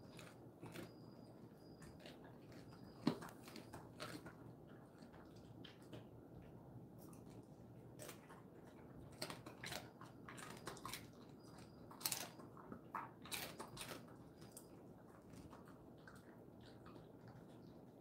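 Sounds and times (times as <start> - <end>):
dog crunching and chewing: 0.0 - 18.0.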